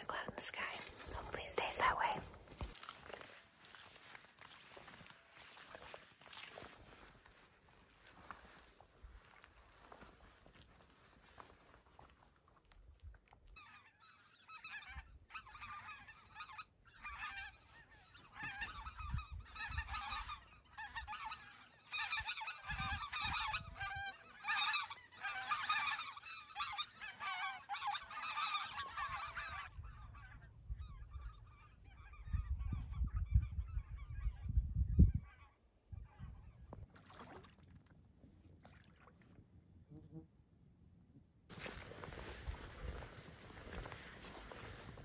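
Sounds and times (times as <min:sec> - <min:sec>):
flock of birds calling: 0:14.8 - 0:29.7, 0:42.0 - 0:45.0.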